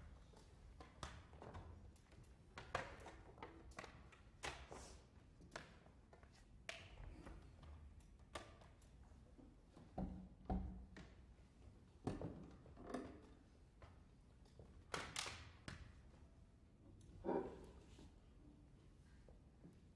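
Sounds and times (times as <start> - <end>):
taps and knocks on wooden stage: 9.7 - 11.3.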